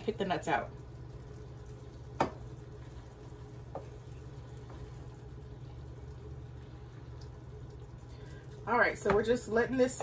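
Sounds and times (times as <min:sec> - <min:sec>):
food simmering with faint sizzle: 0:00.0 - 0:10.0
steady low hum: 0:00.0 - 0:10.0
wooden spoon tapping pan: 0:02.2 - 0:02.5, 0:09.0 - 0:09.3.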